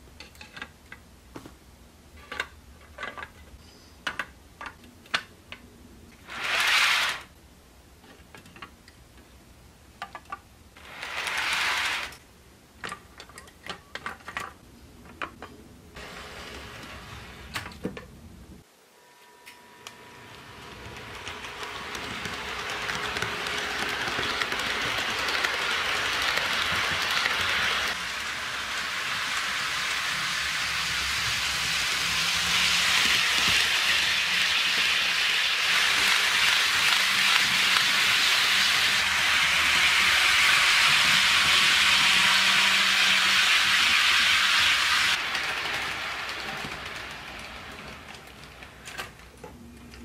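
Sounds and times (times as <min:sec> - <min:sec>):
model train wheels hissing on rails: 0:06.2 - 0:07.3, 0:10.8 - 0:12.2, 0:16.0 - 0:17.7, 0:19.9 - 0:49.1.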